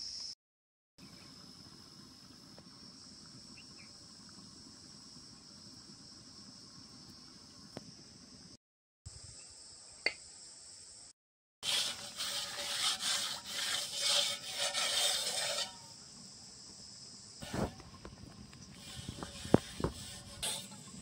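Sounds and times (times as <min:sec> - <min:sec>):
metal pot being scrubbed: 0:11.6 - 0:16.0, 0:18.7 - 0:21.0.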